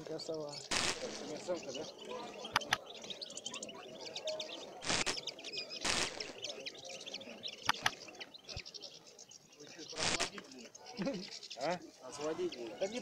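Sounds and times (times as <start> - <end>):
songbirds chirping and twittering: 0.0 - 13.0
bursts of rushing noise: 0.7 - 1.5, 4.8 - 6.6.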